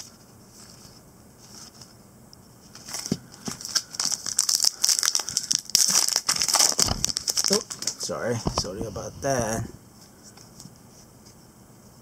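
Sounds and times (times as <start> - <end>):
foil wrapper crinkling and tearing: 2.8 - 8.1.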